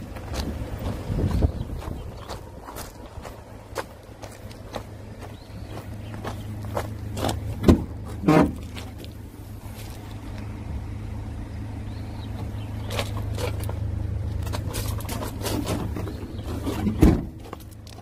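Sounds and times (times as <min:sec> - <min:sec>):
van engine idling: 0:00.0 - 0:18.0
heavy thump: 0:07.6 - 0:08.6, 0:16.8 - 0:17.4.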